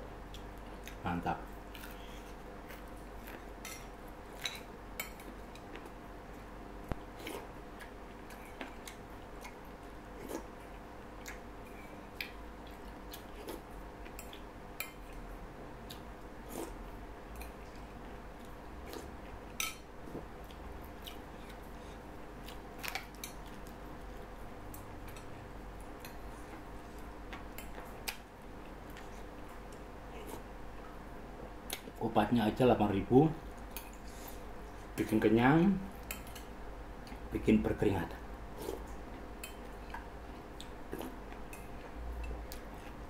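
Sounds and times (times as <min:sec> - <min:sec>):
faint steady hum: 0:00.0 - 0:43.0.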